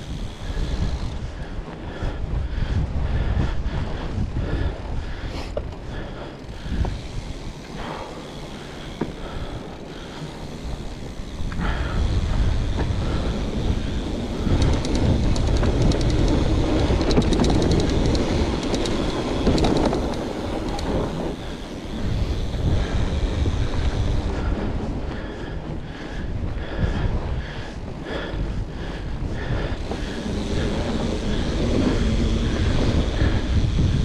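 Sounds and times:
wind on microphone: 0.0 - 7.6, 10.5 - 34.0
bike tyres rumbling over ground: 0.0 - 34.0
fast rattling clicks: 5.6 - 24.4, 29.6 - 34.0.

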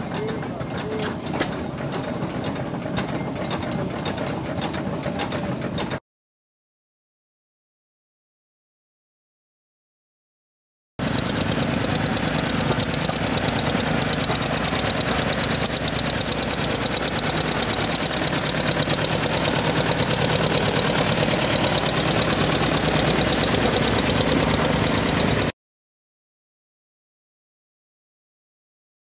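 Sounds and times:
tractor engine running: 0.0 - 6.0, 11.0 - 25.5.

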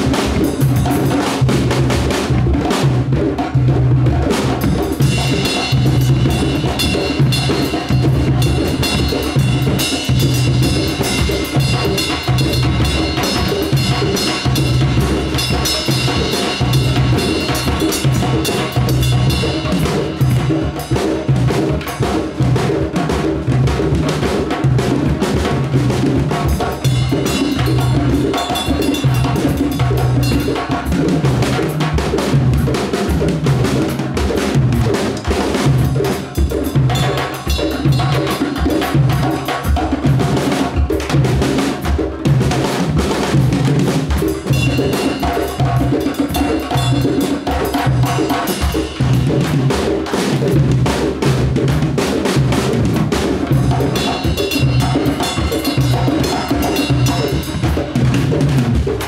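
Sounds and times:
drum kit: 0.0 - 59.0
hand drums interlocking rhythms: 0.0 - 59.0
cymbal ringing: 28.5 - 29.3, 54.0 - 57.6.

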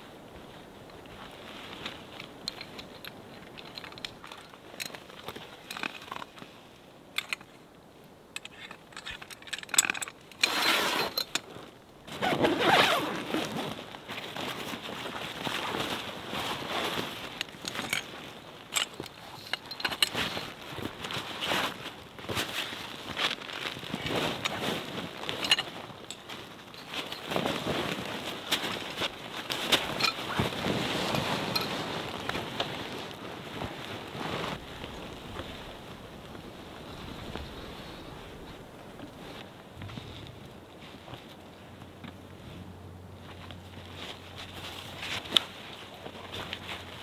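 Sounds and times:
tent fabric rustling: 0.0 - 6.7, 10.4 - 47.0
tent pole clicks and knocks: 8.4 - 35.5.

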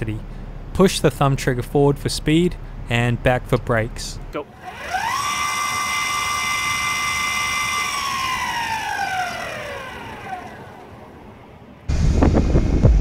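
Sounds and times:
electric motor whine: 4.5 - 11.6.

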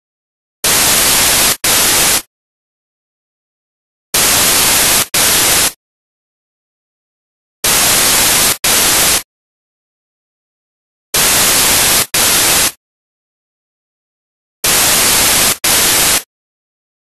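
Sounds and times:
white-noise static bursts: 0.6 - 2.3, 4.2 - 5.8, 7.6 - 9.3, 11.2 - 12.8, 14.6 - 16.3.

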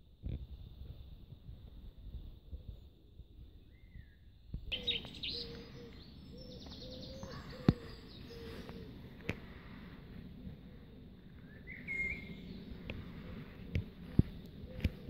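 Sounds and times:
low rumble: 0.1 - 15.0
birds chirping: 3.6 - 15.0.

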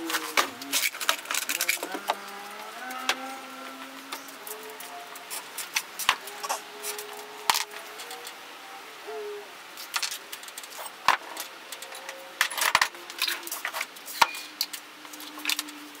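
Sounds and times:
small objects clattering on workbench: 0.0 - 3.3, 9.8 - 15.8.

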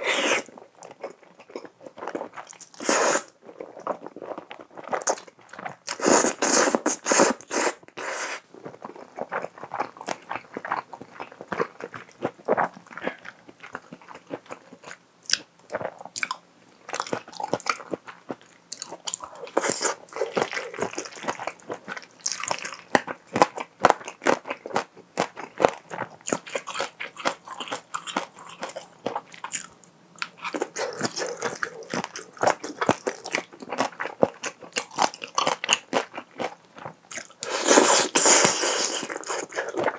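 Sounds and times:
noodle slurping: 0.0 - 0.5, 2.8 - 3.3, 37.4 - 39.8
chewing with mouth clicks: 0.1 - 7.6, 8.6 - 39.9.

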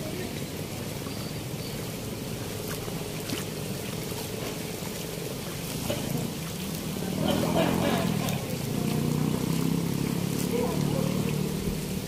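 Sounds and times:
water rushing through sluice gate: 0.0 - 12.0.

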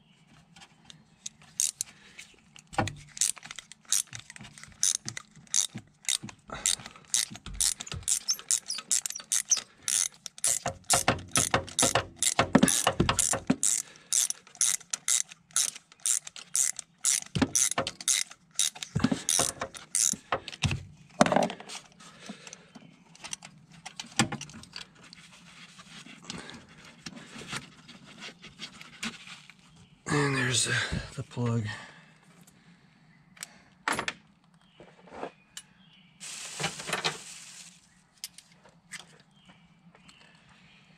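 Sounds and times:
socket ratchet clicking: 1.6 - 1.9, 3.1 - 20.2.

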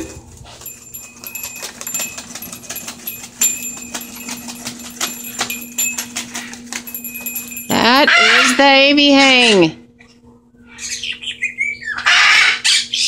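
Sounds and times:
low hum: 0.0 - 11.2
claws and beak tapping on swing: 0.5 - 8.8
parrot wings flapping: 0.6 - 8.4.

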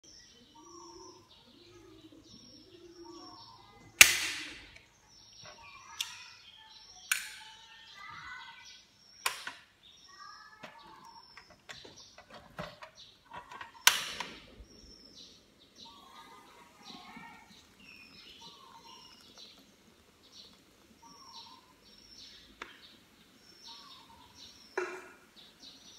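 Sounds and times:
small birds chirping: 0.0 - 25.9
sharp clicks or knocks: 4.0 - 4.9, 7.1 - 7.5, 9.2 - 9.7, 10.6 - 14.5.

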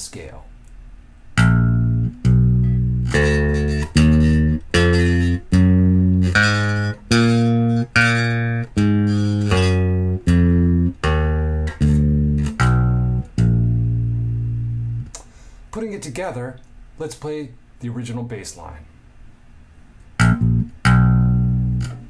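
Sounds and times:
electric bass plucked notes: 1.3 - 15.2, 20.2 - 22.0.

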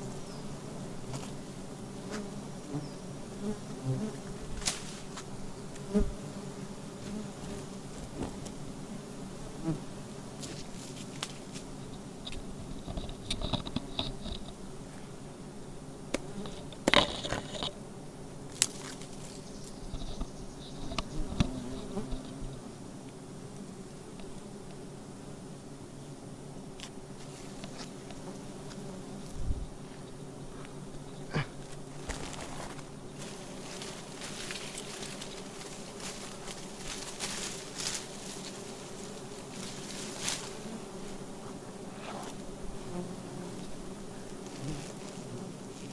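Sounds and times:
bees buzzing: 0.0 - 45.9
leaves and branches rustling: 4.2 - 6.0, 10.3 - 15.2, 18.4 - 22.4, 26.8 - 42.9, 43.6 - 45.9
clicks and rustles of handling: 10.4 - 14.6, 16.1 - 17.8.

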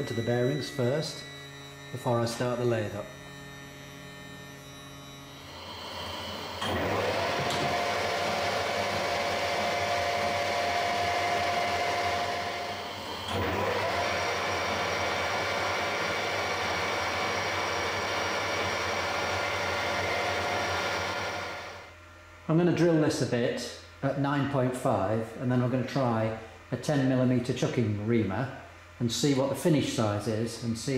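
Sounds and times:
metal lathe whining: 0.0 - 21.9.

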